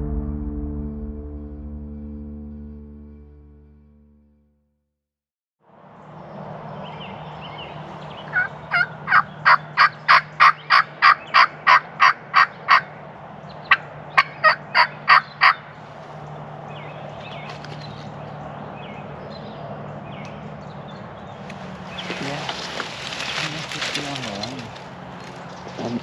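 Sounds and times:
small birds chirping: 6.0 - 26.0
turkey yelping: 8.2 - 13.0, 13.7 - 15.8.

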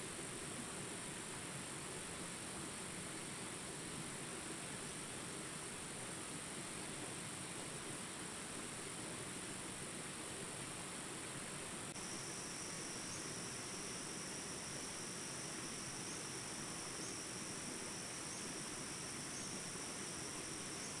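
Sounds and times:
low insect tone: 0.0 - 21.0
high insect chorus: 10.1 - 21.0.

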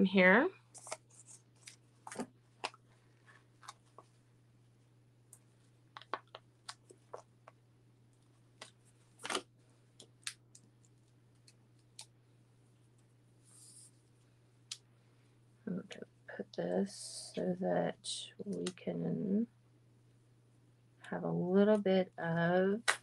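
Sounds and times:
low steady hum: 0.0 - 23.0
paper handling clicks and taps: 6.0 - 7.2.

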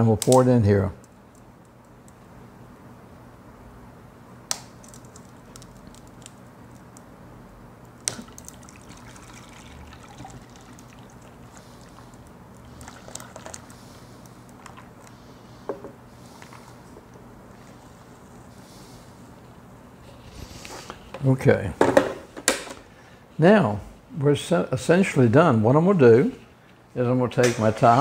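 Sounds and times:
caramel cracking: 4.4 - 7.1, 7.8 - 9.2
liquid pouring into pan: 8.1 - 12.0, 12.8 - 13.7.

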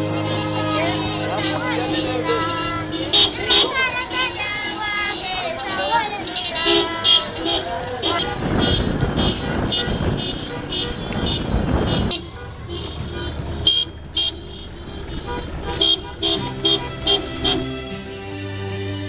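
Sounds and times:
pitched melody: 0.0 - 8.6, 12.1 - 18.2
car horn toots: 0.0 - 17.8
sharp rhythmic beats: 0.0 - 17.8
low vehicle rumble: 0.0 - 18.2.

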